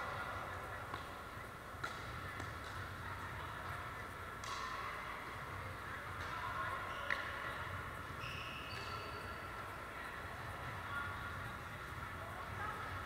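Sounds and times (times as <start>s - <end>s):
murmur of distant voices: 0.0s - 13.0s
sneaker squeaks on wooden floor: 8.2s - 9.4s.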